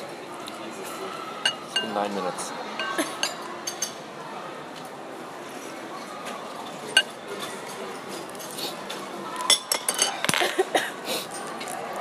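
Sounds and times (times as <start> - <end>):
tableware clinking: 1.4 - 2.0, 2.8 - 4.1, 6.8 - 8.6, 9.4 - 10.5.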